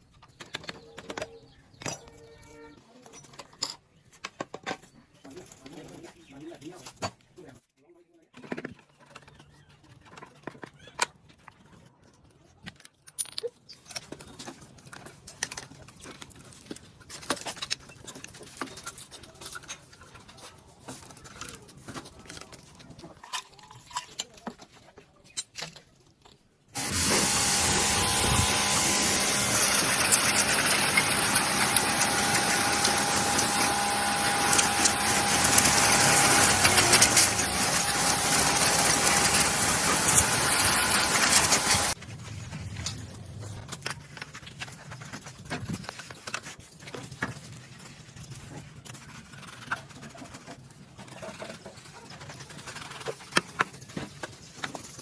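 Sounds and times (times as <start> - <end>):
metal parts clanking and rattling: 0.2 - 6.2, 12.6 - 47.3
pressure washer jet hissing on metal: 26.8 - 42.0
pump whine: 26.8 - 43.9.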